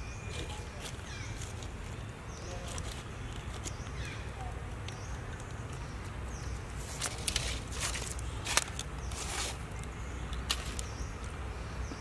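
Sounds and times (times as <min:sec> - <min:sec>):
rustling: 0:00.2 - 0:04.2, 0:06.6 - 0:11.4.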